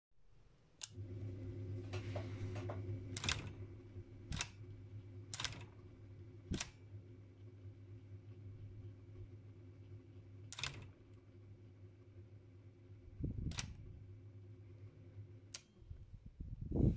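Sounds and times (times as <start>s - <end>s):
typewriter motor humming: 2.0s - 6.9s, 9.8s - 11.3s
typewriter mechanism clacking: 3.2s - 3.6s, 4.3s - 4.6s, 5.3s - 5.8s, 10.5s - 11.0s.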